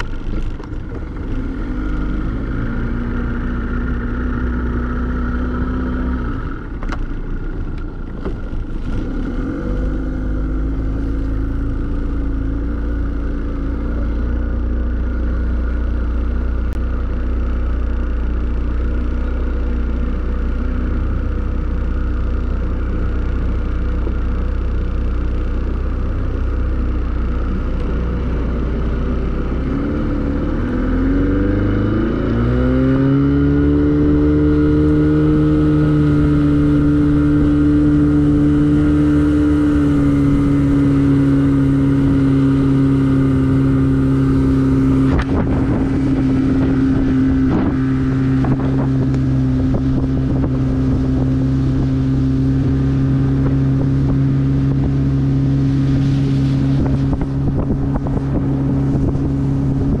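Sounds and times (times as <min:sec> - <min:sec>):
outboard motor: 0:00.0 - 1:00.0
wind buffeting microphone: 0:35.3 - 1:00.0.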